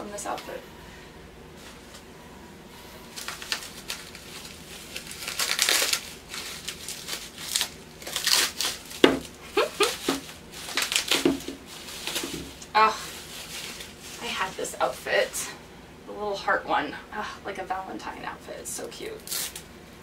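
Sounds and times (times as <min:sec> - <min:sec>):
plastic bag crinkling: 0:03.0 - 0:15.4.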